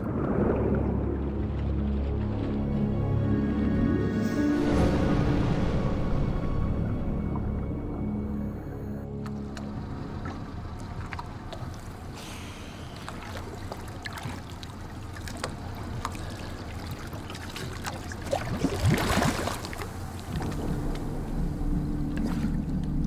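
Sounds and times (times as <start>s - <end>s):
rush of splashing and bubbles: 0.0s - 8.1s, 9.1s - 23.0s
water sloshing and lapping: 0.0s - 23.0s.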